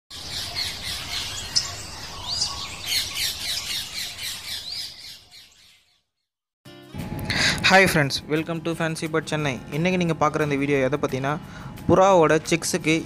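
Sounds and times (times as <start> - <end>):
small birds chirping and squawking: 0.1 - 6.1.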